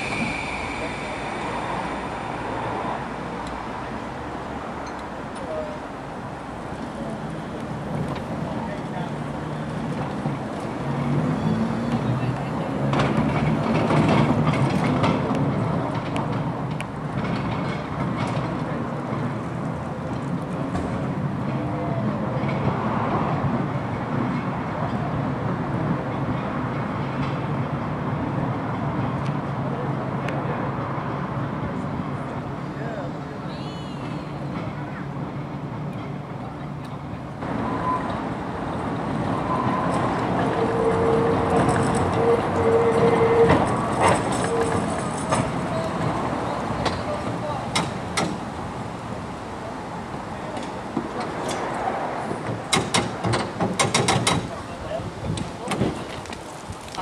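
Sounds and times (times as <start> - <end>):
tram rumbling on track: 0.0 - 57.0
wheels clicking over rails: 50.5 - 54.6.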